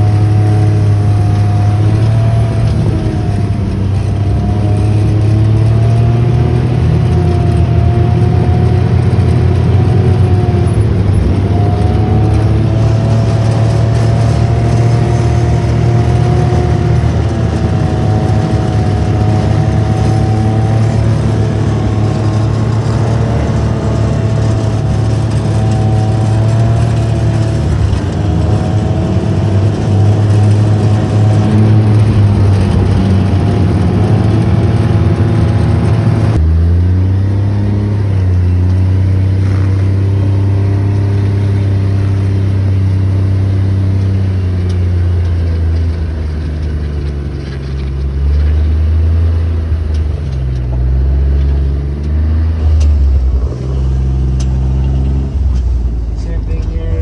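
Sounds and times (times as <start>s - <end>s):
vehicle engine humming with whine: 0.0s - 57.0s.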